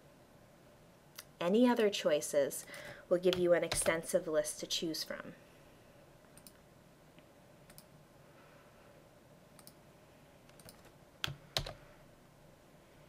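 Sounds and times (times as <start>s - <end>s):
mouse and keyboard clicks: 10.5s - 11.8s.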